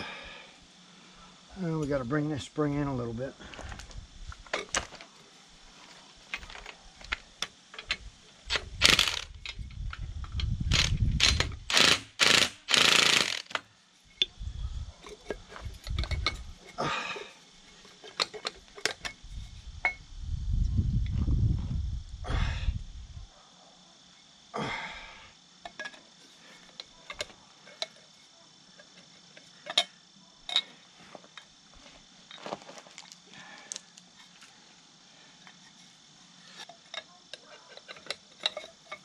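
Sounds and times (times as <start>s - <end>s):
metal parts clanking: 6.3s - 14.3s, 15.0s - 16.8s, 17.6s - 20.0s, 26.6s - 28.1s, 28.8s - 31.4s, 36.5s - 39.0s
ratchet clicking: 7.4s - 13.6s.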